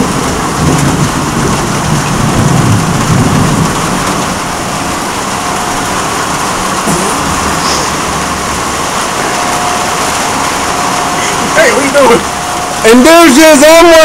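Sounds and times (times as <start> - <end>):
low rumble of thunder: 0.0 - 11.2
heavy rain falling: 0.0 - 14.0.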